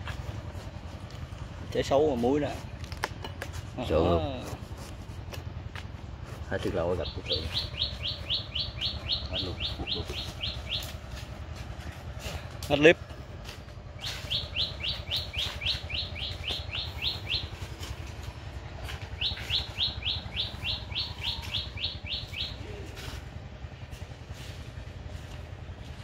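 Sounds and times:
bird calling high sharp notes: 0:06.8 - 0:11.3, 0:13.9 - 0:18.2, 0:18.8 - 0:23.4.

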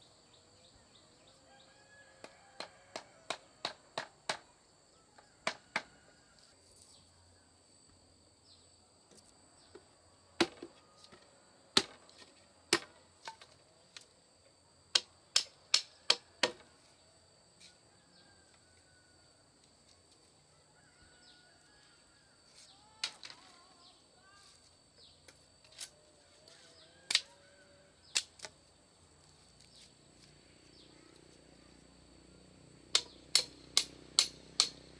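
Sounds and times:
machete chopping bamboo: 0:02.2 - 0:04.5, 0:10.4 - 0:10.7, 0:11.8 - 0:13.6, 0:14.9 - 0:16.7, 0:28.1 - 0:28.6, 0:32.9 - 0:34.9
high insect drone: 0:16.0 - 0:34.9.

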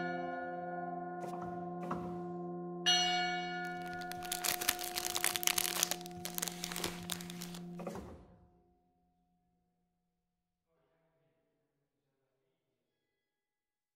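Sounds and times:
cellophane bag crinkling: 0:03.7 - 0:07.8.

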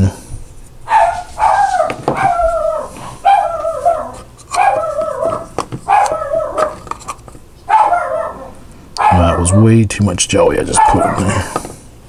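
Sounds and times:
dog whining: 0:00.9 - 0:06.9, 0:07.7 - 0:09.7, 0:10.8 - 0:11.4.

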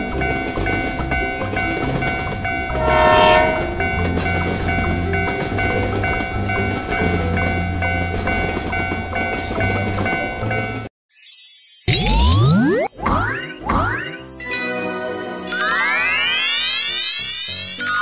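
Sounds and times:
train running noise: 0:00.0 - 0:10.9
train horn blast: 0:02.7 - 0:03.8.

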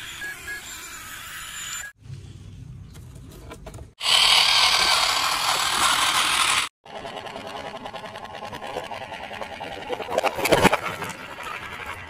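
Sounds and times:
toy truck motor whirring: 0:04.0 - 0:12.0.

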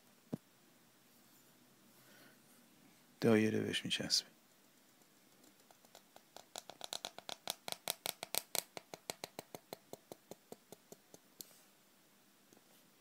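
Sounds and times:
pen nib scratching paper: 0:04.7 - 0:08.6.

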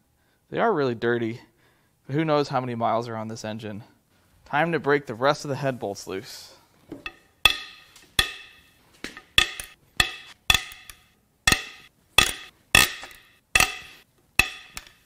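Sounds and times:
bolts cracking loose metallic: 0:07.0 - 0:15.0.

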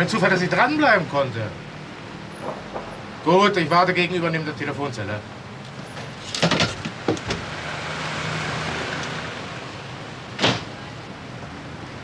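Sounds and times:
car passing: 0:00.0 - 0:04.2, 0:05.4 - 0:12.0
street traffic: 0:00.0 - 0:12.0.

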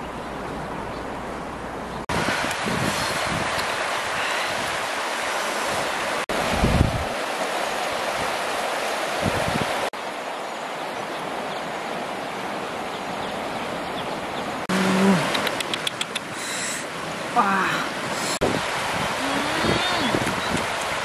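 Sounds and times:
rushing river water: 0:00.0 - 0:21.0
wind on microphone: 0:02.1 - 0:09.9, 0:18.0 - 0:21.0.

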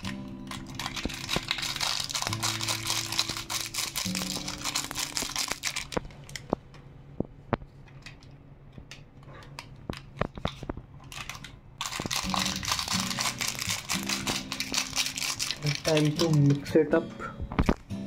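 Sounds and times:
background music: 0:00.0 - 0:06.0, 0:11.8 - 0:18.0
foil sachet crinkling: 0:00.0 - 0:06.6, 0:09.6 - 0:16.8.

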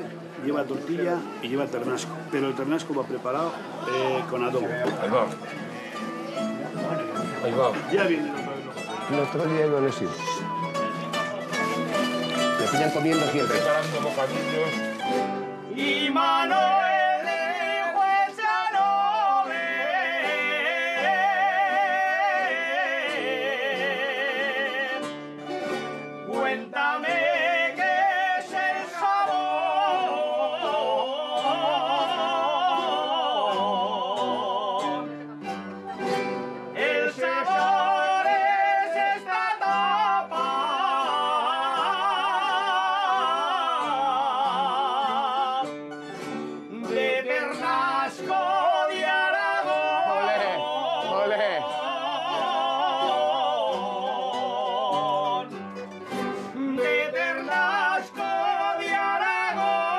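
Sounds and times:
guitars and plucked strings: 0:00.0 - 0:59.9
person singing with vibrato: 0:15.7 - 0:25.2, 0:26.3 - 0:35.2, 0:36.7 - 0:45.8, 0:46.7 - 0:59.9.

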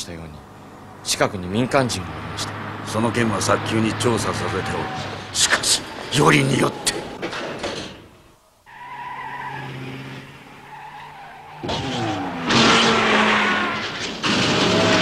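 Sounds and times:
engine hum: 0:00.0 - 0:15.0
car rushing past: 0:00.4 - 0:08.1, 0:09.0 - 0:15.0.

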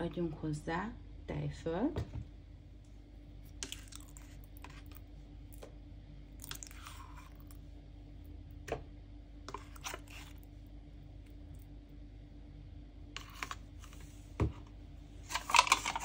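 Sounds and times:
faint steady hum: 0:00.0 - 0:16.0
spoon scraping plastic bowl: 0:03.6 - 0:05.0, 0:09.5 - 0:10.5, 0:13.2 - 0:14.1, 0:15.3 - 0:16.0.

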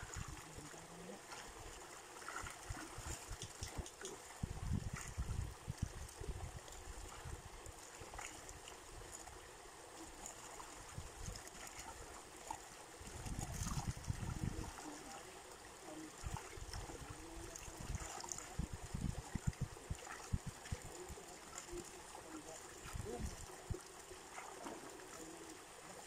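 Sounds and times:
shallow water splashing: 0:00.0 - 0:26.0
fish flicking at water surface: 0:02.3 - 0:04.2.

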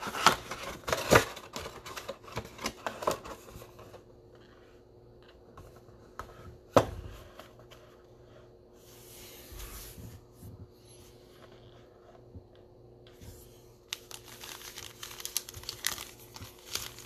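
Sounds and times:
foil packs crinkling: 0:13.9 - 0:17.0.

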